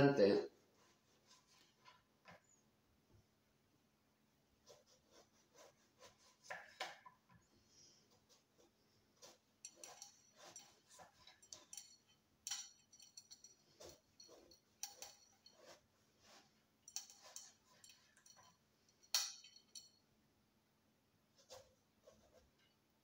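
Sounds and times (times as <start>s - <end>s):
kitchen utensils and dishes clinking: 9.6s - 20.0s.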